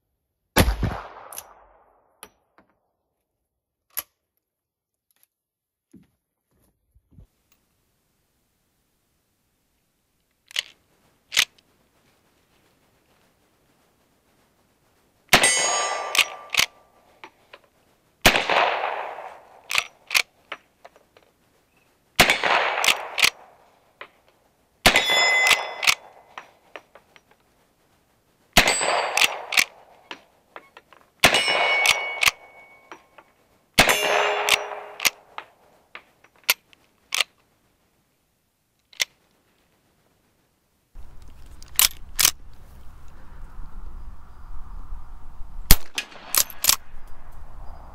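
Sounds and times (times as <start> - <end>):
rifle shots: 0.6 - 2.0, 15.3 - 16.9, 18.2 - 20.2, 22.2 - 23.7, 24.8 - 26.4, 28.6 - 30.1, 31.2 - 32.9, 33.8 - 35.6, 45.7 - 47.0
rifle lever clacking: 10.5 - 11.6, 15.7 - 16.8, 19.7 - 20.3, 22.5 - 23.4, 25.2 - 26.5, 28.9 - 30.2, 31.6 - 33.0, 34.1 - 35.5, 41.0 - 42.4
steel target ringing: 15.4 - 16.6, 24.9 - 26.2, 31.2 - 33.1, 33.8 - 35.0
wind on microphone: 41.0 - 47.9.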